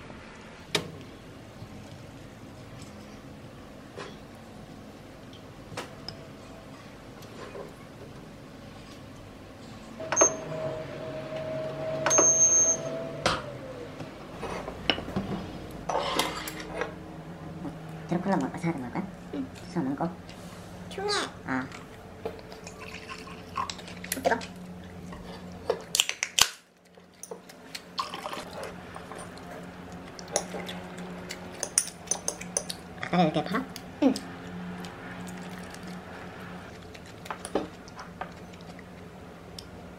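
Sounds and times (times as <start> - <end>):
oven motor hum: 0.0 - 25.9, 27.4 - 39.9
oven control panel beeps: 10.0 - 13.1
wet smacking eating sounds: 36.7 - 39.1.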